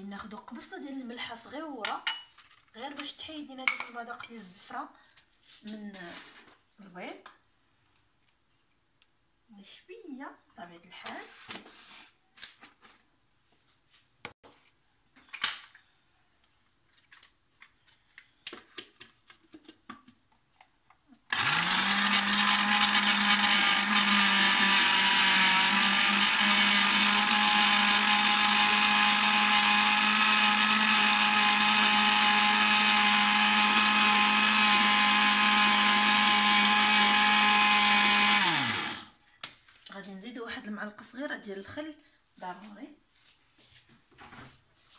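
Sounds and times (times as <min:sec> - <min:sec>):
blender running: 0:21.3 - 0:39.1.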